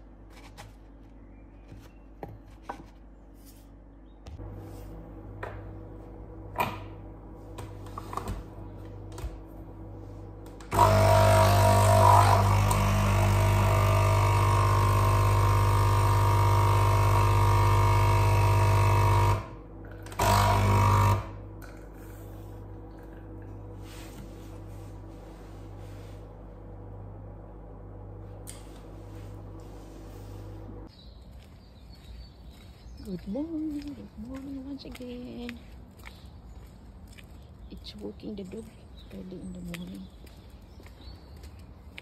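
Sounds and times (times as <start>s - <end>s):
espresso machine pump buzzing: 10.6s - 21.8s.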